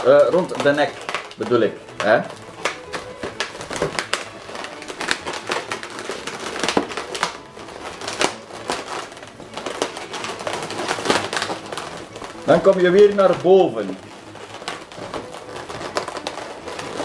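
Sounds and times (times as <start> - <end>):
balloons squeaking and rubbing: 0.0 - 17.0.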